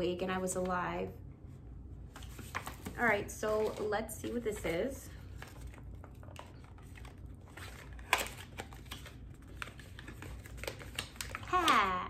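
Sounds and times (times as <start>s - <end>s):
gift wrapping paper crinkling tearing: 5.4s - 12.0s.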